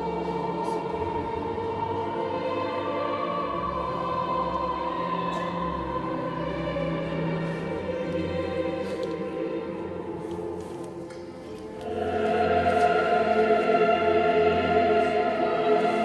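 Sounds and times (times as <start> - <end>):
choir singing held chords: 0.0 - 16.0.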